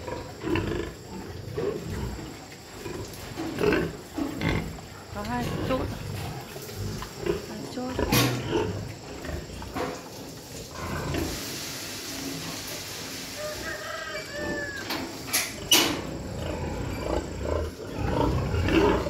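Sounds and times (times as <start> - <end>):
pigs grunting: 0.0 - 11.4, 13.4 - 19.0
pig squeals: 13.4 - 19.0.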